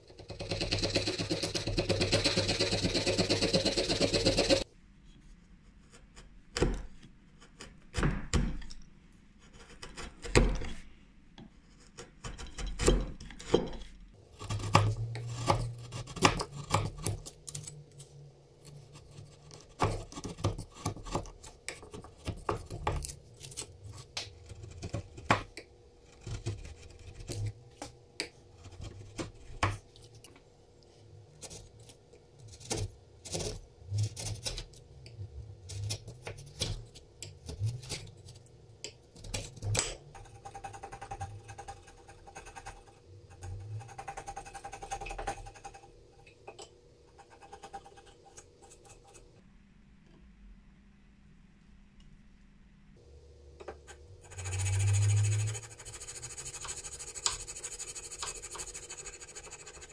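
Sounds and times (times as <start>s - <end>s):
chisel slicing and scraping wood: 0.1s - 4.7s, 9.4s - 10.8s, 11.6s - 30.3s, 31.3s - 45.9s, 53.6s - 59.9s.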